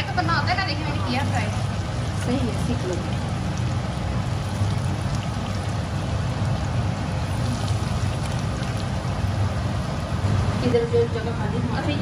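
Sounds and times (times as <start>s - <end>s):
low steady hum: 0.0s - 12.0s
oil sizzling and popping: 0.9s - 10.1s.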